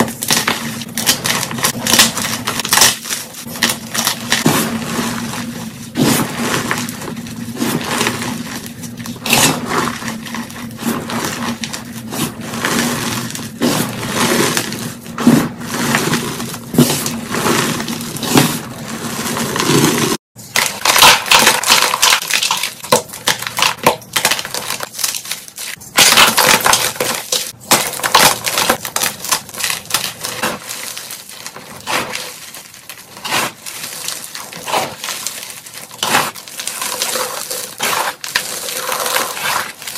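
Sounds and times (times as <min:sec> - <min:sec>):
hands crumbling chalk: 0:00.0 - 0:39.9.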